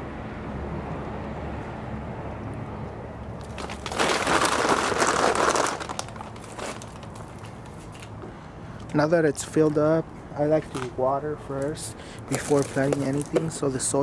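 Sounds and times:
plastic bag crinkling: 3.4s - 8.1s, 12.3s - 13.5s.

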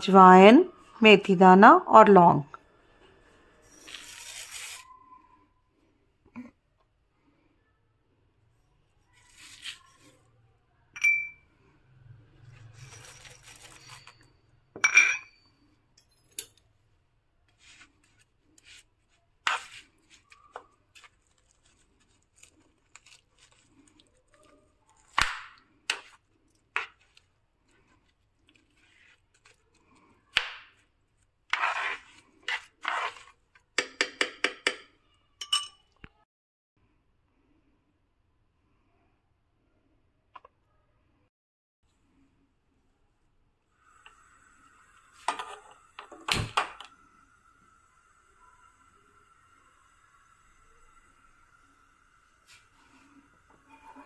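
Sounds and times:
seeds pouring rustle: 3.9s - 4.9s
metal spoon clinking on pan: 11.0s - 11.4s, 13.7s - 16.7s, 33.8s - 36.0s.

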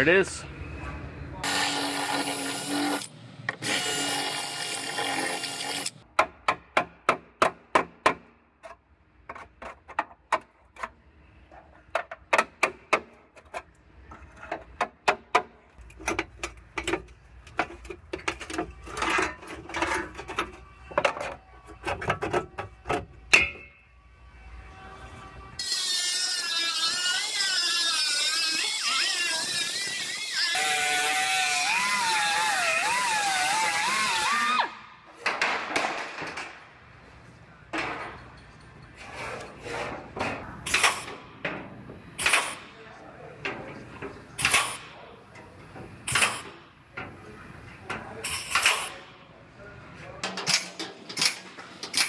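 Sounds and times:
pneumatic disc grinder on steel: 1.4s - 6.0s, 25.6s - 34.6s
sharp metal clicks and knocks: 50.2s - 52.0s.

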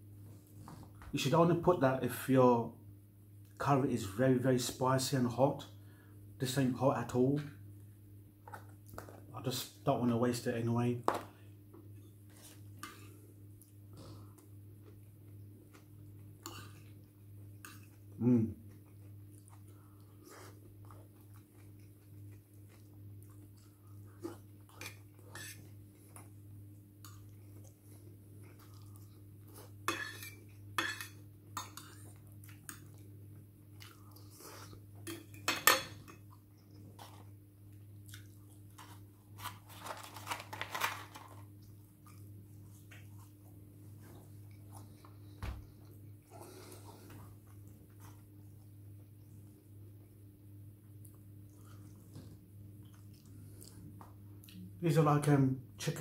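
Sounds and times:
faint low hum: 0.0s - 56.0s
chewing: 12.8s - 30.7s, 31.5s - 34.9s, 36.2s - 39.1s, 41.5s - 50.2s, 50.9s - 54.7s
cutlery clinking and scraping on dishes: 29.9s - 32.0s, 35.1s - 36.2s.

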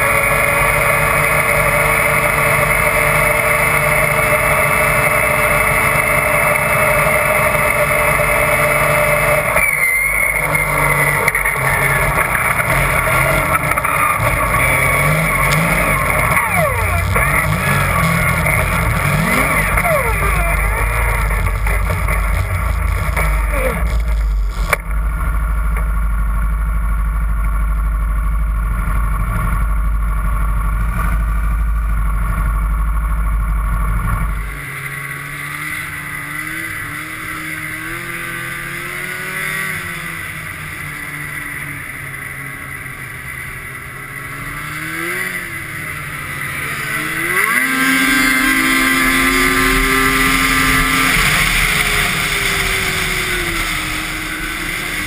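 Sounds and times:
snowmobile engine revving: 0.0s - 26.7s, 28.3s - 55.0s.

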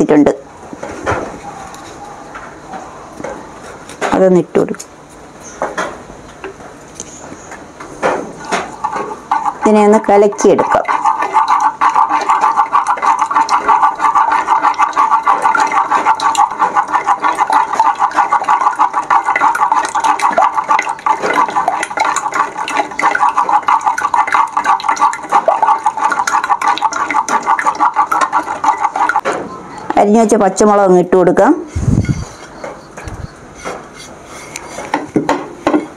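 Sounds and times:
eggs beaten in clay pot: 7.6s - 30.9s, 31.5s - 35.9s.

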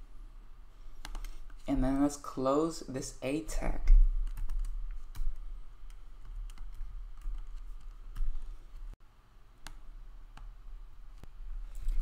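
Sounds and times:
low steady hum: 0.0s - 12.0s
keyboard keys clicking: 4.2s - 8.4s.

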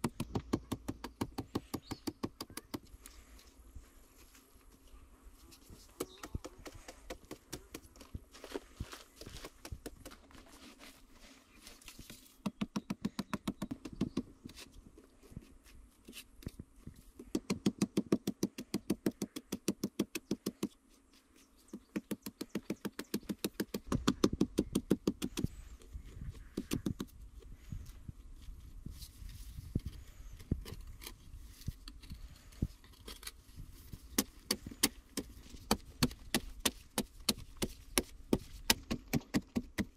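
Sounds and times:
machete chopping clay earth: 0.0s - 2.9s, 5.9s - 8.1s, 17.3s - 20.7s, 34.1s - 39.9s.

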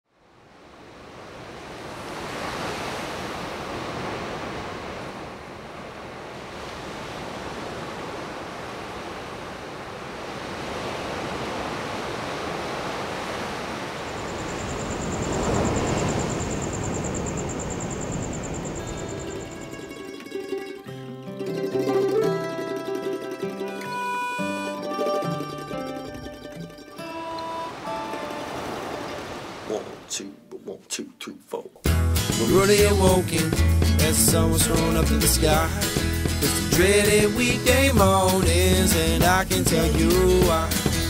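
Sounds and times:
waves breaking: 0.3s - 19.9s, 27.0s - 30.3s.

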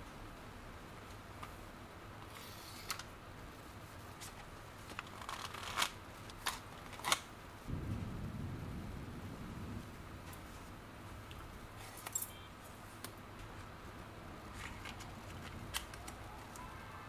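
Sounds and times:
paper rustling and snapping: 4.2s - 7.3s, 14.5s - 16.7s
low steady rumble: 7.6s - 11.9s.

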